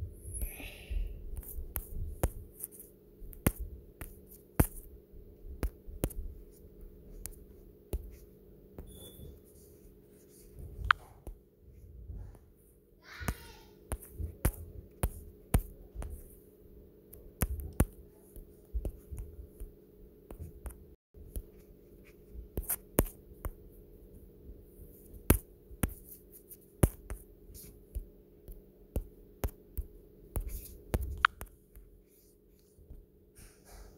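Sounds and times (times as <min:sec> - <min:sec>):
faint steady hum: 0:00.0 - 0:33.9
fingertips tapping touchscreen: 0:01.4 - 0:04.9, 0:05.6 - 0:11.4, 0:13.3 - 0:16.4, 0:25.0 - 0:32.2.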